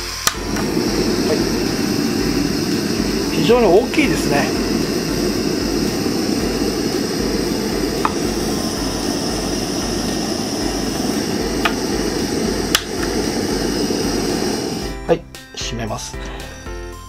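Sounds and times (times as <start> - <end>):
gas burner rushing: 0.0 - 15.2
faint stove clicks: 12.7 - 13.1.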